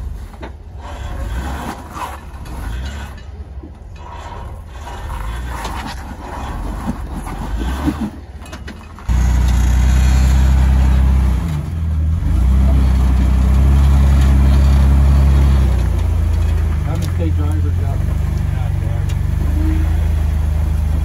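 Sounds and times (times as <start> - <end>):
engine running at low revs: 9.1 - 21.0.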